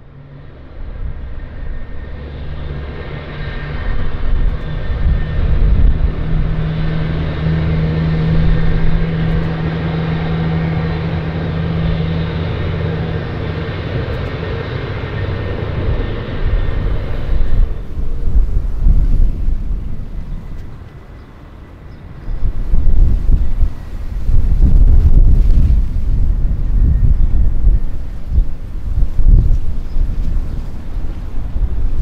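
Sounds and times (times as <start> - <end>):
jet engine drone: 0.0 - 32.0.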